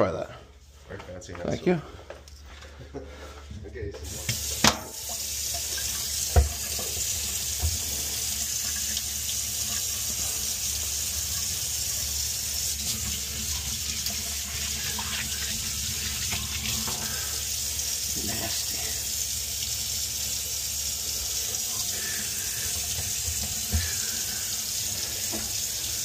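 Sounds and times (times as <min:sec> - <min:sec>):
faucet running into metal sink: 0:04.0 - 0:26.0.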